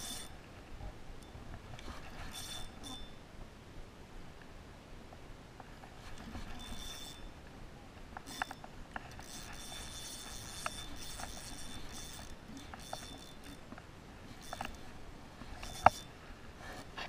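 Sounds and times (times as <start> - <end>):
fishing reel buzzing and clicking: 0.0 - 0.4, 2.0 - 3.2, 6.0 - 7.3, 8.2 - 13.7, 14.3 - 16.2.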